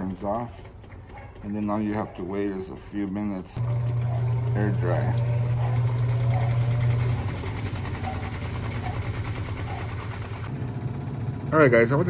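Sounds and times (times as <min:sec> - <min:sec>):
washing machine motor humming: 0:03.6 - 0:11.6.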